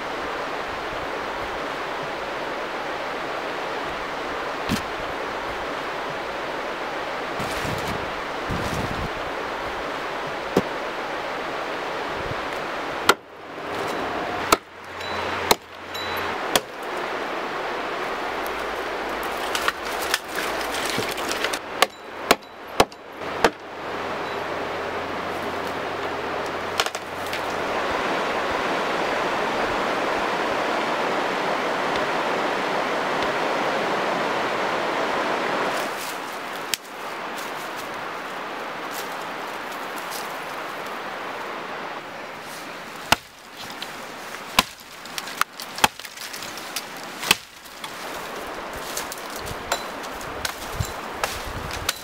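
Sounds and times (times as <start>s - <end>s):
river rushing: 0.0s - 52.0s
hatchet chopping tree trunk: 4.7s - 4.9s, 10.5s - 10.8s, 12.5s - 16.8s, 19.2s - 23.7s, 26.7s - 27.6s, 43.0s - 48.2s, 49.0s - 52.0s.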